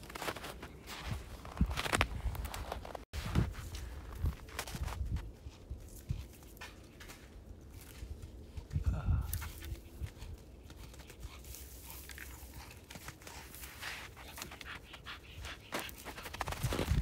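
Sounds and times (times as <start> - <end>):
footsteps crunching in snow: 0.0 - 8.7, 9.3 - 17.0
dog panting hard: 10.2 - 16.6.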